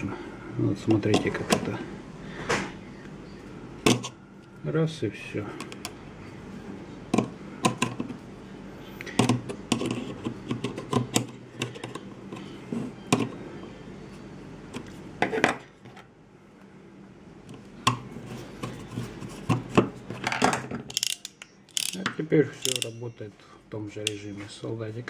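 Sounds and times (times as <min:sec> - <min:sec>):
metal pliers clicking: 0:20.9 - 0:23.0.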